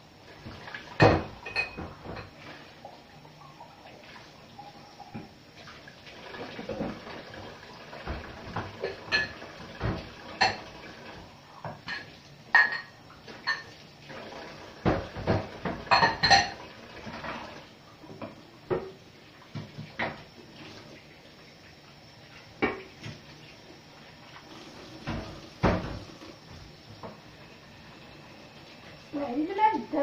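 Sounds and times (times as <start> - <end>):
running tap water: 0.0 - 30.0
dishes and cutlery clinking: 1.0 - 2.4, 8.1 - 10.8, 11.6 - 13.8, 14.8 - 16.6.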